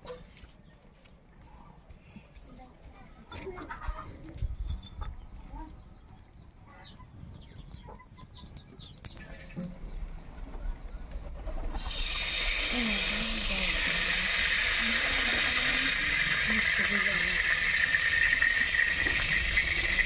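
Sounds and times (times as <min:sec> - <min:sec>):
small birds chirping: 0:00.4 - 0:11.4
oil sizzling in wok: 0:11.7 - 0:20.0.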